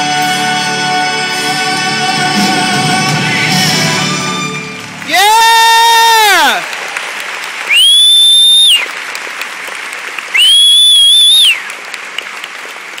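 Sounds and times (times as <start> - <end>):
audience applauding: 4.5 - 13.0
loud high whistles: 7.7 - 8.9, 10.3 - 11.7.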